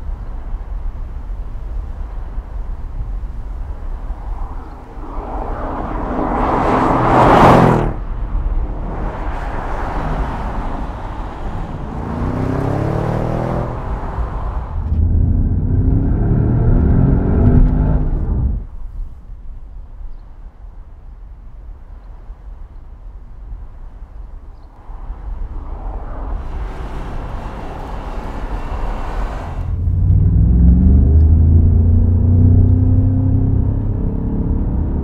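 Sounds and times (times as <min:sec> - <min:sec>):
car passing by: 0:03.5 - 0:18.7, 0:24.6 - 0:35.0
car engine accelerating: 0:04.0 - 0:18.7, 0:25.0 - 0:35.0.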